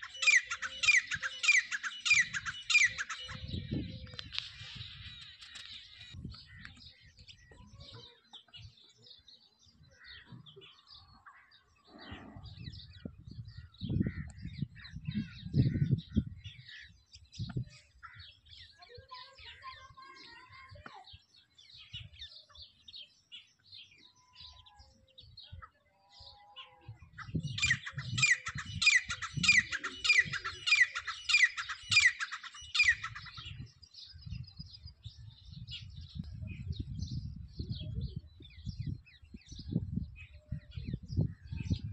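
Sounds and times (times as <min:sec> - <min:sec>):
small birds chirping: 0:00.0 - 0:41.9.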